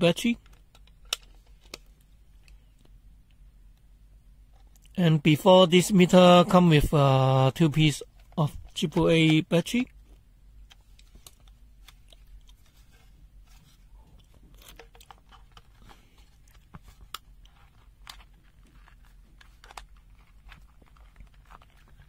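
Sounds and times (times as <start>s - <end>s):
clicks and rustles of handling: 0.3s - 3.4s, 8.0s - 22.0s.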